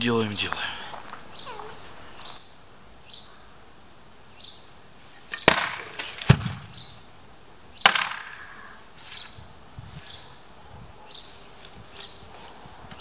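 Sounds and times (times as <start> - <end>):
axe chopping wood: 5.3 - 6.8, 7.8 - 8.4.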